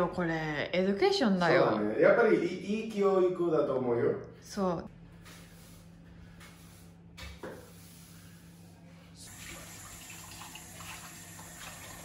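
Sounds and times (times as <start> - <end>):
tap water running into metal sink: 9.3 - 12.0.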